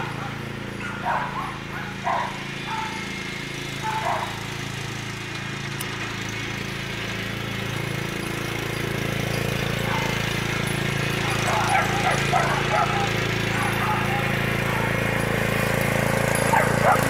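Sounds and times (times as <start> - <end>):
riding lawn mower engine: 0.0 - 17.0
dog barking: 0.1 - 3.0, 3.8 - 4.4, 9.8 - 10.3, 11.2 - 15.0, 16.5 - 17.0.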